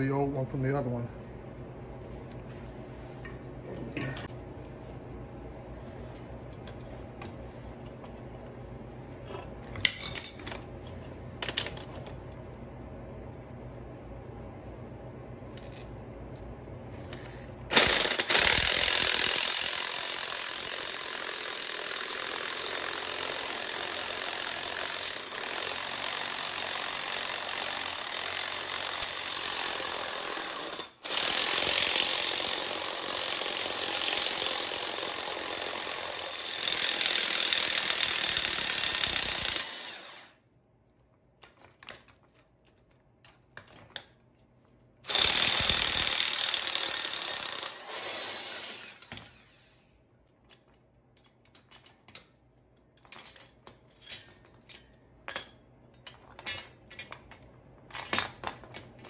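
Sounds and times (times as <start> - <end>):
electric impact wrench hammering: 17.7 - 40.4, 45.0 - 49.3.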